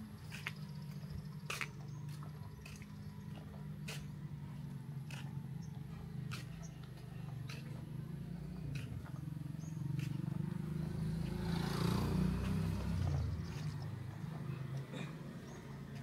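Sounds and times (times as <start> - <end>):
low engine rumble: 0.0 - 16.0.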